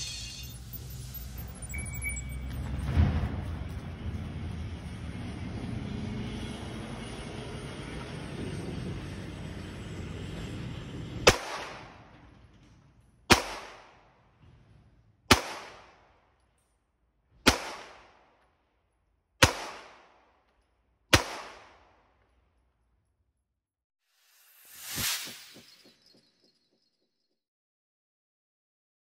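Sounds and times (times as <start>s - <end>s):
pistol shots with echo: 11.3s - 12.0s, 13.3s - 14.0s, 15.3s - 16.2s, 17.4s - 18.3s, 19.4s - 20.3s, 21.1s - 21.9s.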